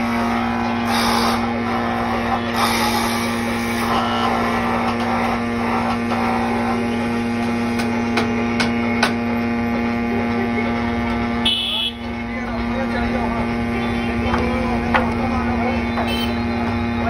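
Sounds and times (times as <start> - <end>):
electric motor hum: 0.0 - 17.0.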